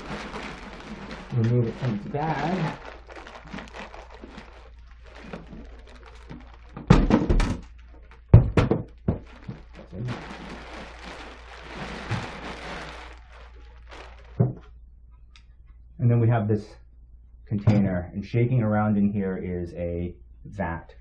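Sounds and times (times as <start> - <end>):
plastic bag crinkling: 0.0 - 14.7.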